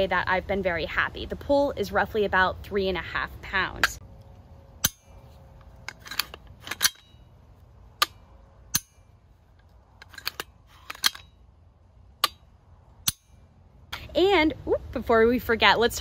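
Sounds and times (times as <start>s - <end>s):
rifle charging handle racking: 4.8s - 7.2s, 10.0s - 11.3s.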